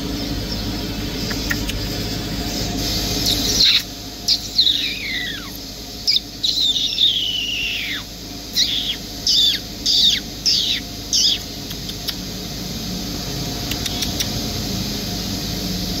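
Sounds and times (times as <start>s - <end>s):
outdoor background hiss: 0.0s - 16.0s
bird whistling: 3.2s - 11.5s.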